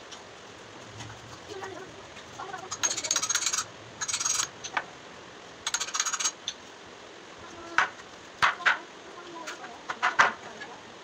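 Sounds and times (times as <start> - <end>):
metal tool scraping wood: 2.6 - 4.6, 5.7 - 6.4.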